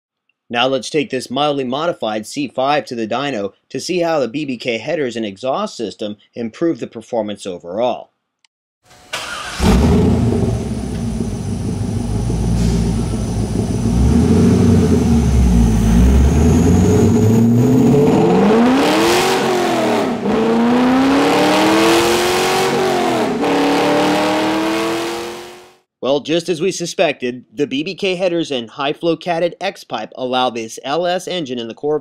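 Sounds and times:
car engine revving on dyno: 9.2s - 25.8s.

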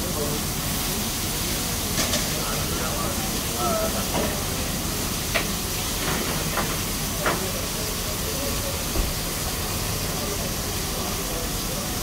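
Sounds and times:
fish frying in oil: 0.0s - 12.0s.

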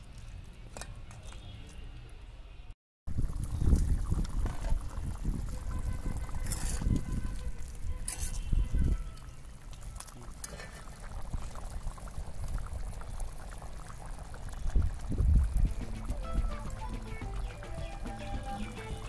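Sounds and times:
gravy bubbling: 3.1s - 19.0s
metal ladle scraping pan: 6.3s - 7.0s, 7.9s - 8.6s.

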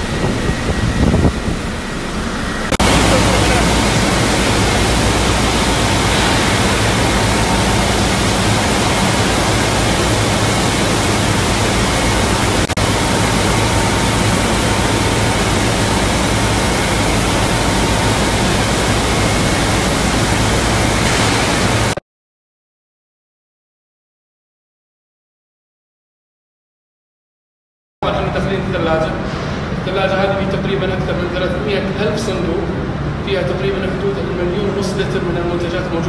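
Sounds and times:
low hum: 0.0s - 22.0s
spraying water and machine noise: 0.0s - 22.0s, 28.0s - 36.0s.

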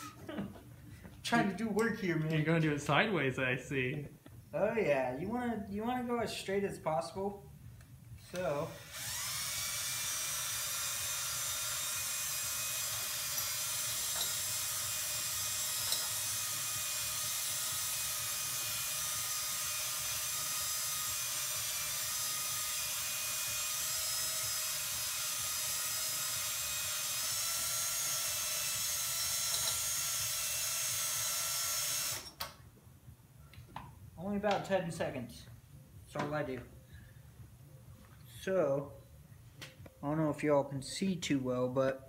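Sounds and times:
cordless drill motor whine: 8.6s - 32.4s.

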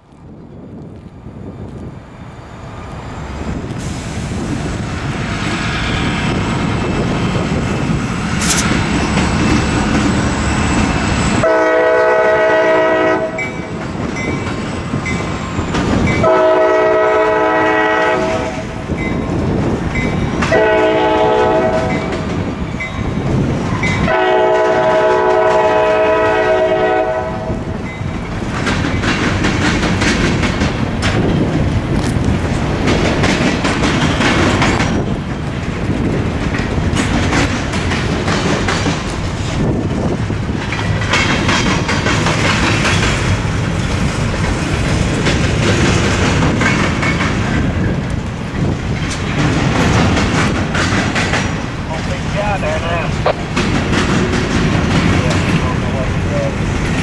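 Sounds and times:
diesel locomotive rumbling: 0.0s - 57.0s
train air horn blasts: 11.4s - 13.6s, 16.2s - 18.8s, 20.5s - 22.2s, 24.0s - 27.7s
freight cars clattering over rails: 28.0s - 57.0s.

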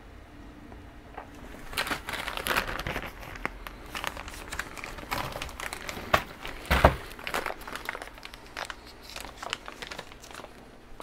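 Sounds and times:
packaging crinkling and rustling: 1.3s - 11.0s.

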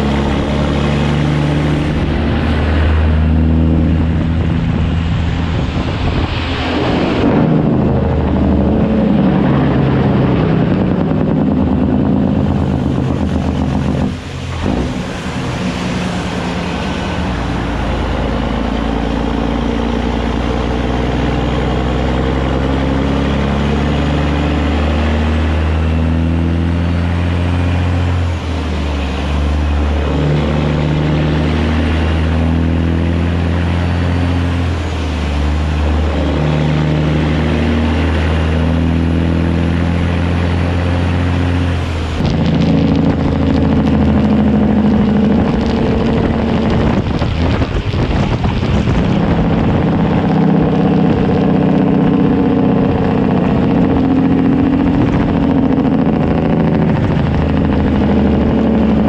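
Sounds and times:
diesel truck engine accelerating: 0.0s - 59.0s
tyre and road-spray noise: 13.2s - 19.2s.

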